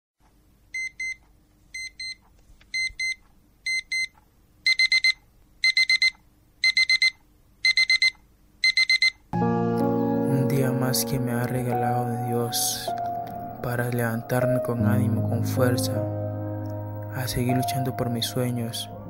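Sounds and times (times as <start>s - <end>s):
high electronic alarm beeping: 4.7s - 9.2s
music: 9.4s - 19.0s.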